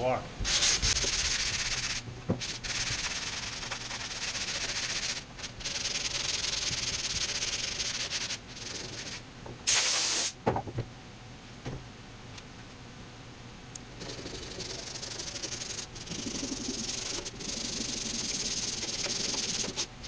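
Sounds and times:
sandpaper rasping by hand: 0.5 - 9.2, 14.0 - 19.9
short loud hiss: 9.7 - 10.4.

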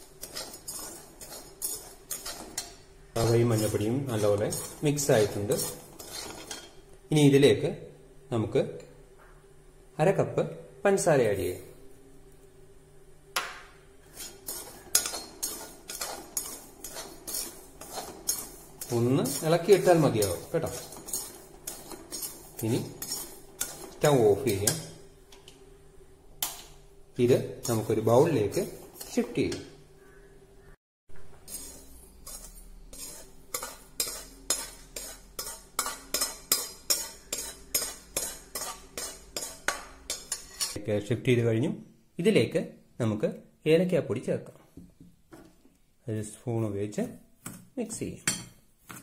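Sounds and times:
metal spoon scraping a pan: 0.0 - 6.9, 14.0 - 25.1, 26.4 - 40.8.

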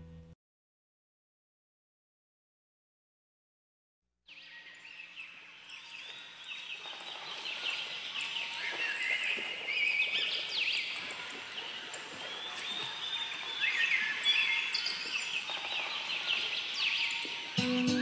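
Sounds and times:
birds chirping and trilling: 4.3 - 18.0.

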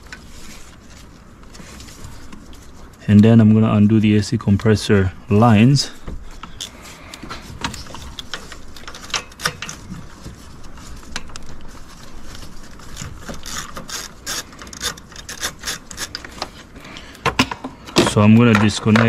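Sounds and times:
ratchet wrench clicking: 13.4 - 16.2.

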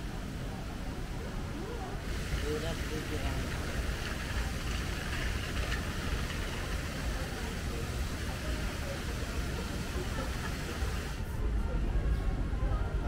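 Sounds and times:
even hiss: 1.5 - 11.2.

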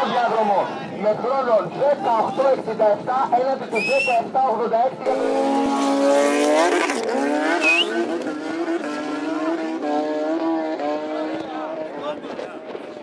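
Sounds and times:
motorcycle engine revving: 5.1 - 13.0.

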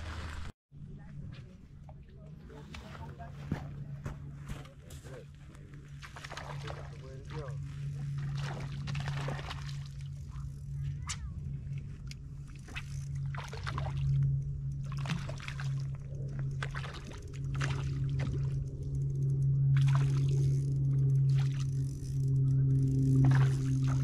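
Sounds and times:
steady low hum: 0.0 - 24.0
fish splashing in water: 6.0 - 7.1, 8.1 - 10.5, 12.4 - 18.8, 19.8 - 20.5, 23.1 - 24.0.

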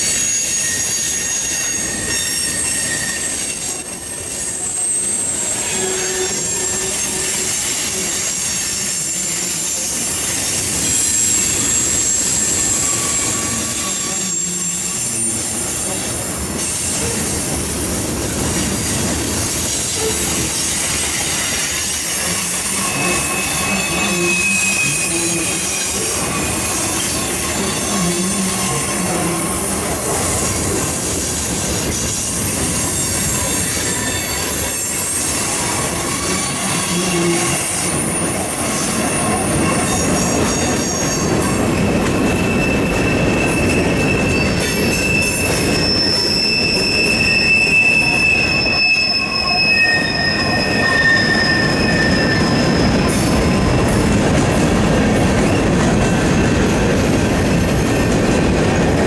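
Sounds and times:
high-pitched wheel squeal: 0.0 - 17.6, 18.4 - 54.2
train wheels rumbling on rail: 0.0 - 59.0.

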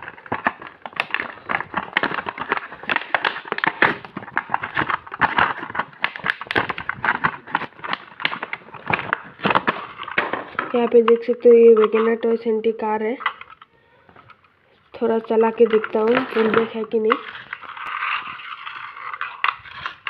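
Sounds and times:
packaging being torn open: 0.0 - 10.5.

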